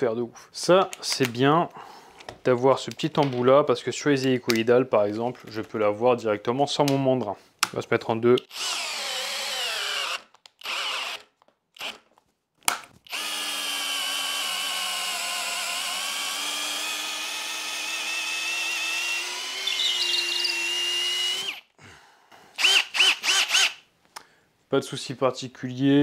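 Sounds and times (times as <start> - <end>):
cordless drill boring into wood: 8.5 - 12.1, 13.1 - 21.7, 22.6 - 23.8.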